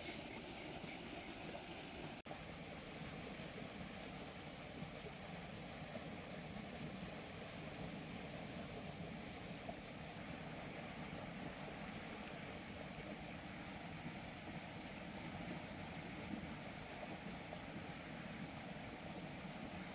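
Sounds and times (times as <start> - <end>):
fast-flowing water rushing: 0.0 - 19.9.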